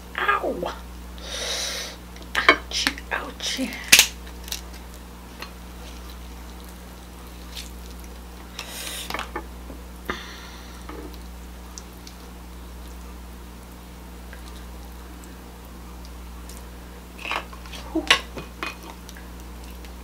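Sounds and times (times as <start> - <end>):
steady low hum: 0.0 - 20.0
crab shell crunching and snapping: 3.9 - 9.4.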